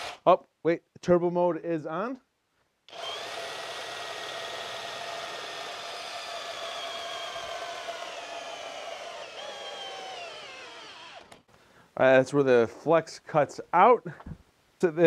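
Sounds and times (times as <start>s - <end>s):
drill boring into log: 0.0s - 0.2s, 2.9s - 11.5s.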